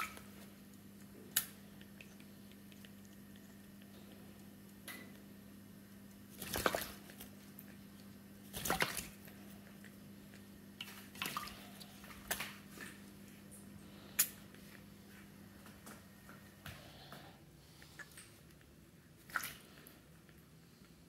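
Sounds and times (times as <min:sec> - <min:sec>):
parrot splashing water: 0:00.0 - 0:05.2, 0:06.0 - 0:13.1, 0:19.2 - 0:20.0.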